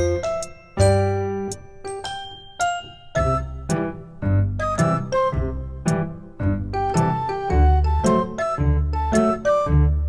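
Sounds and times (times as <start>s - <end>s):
light keyboard tune: 0.0s - 10.0s
low bass notes: 3.4s - 10.0s.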